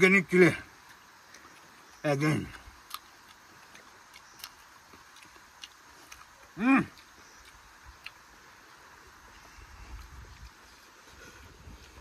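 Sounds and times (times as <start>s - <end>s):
eating clicks: 0.8s - 8.8s.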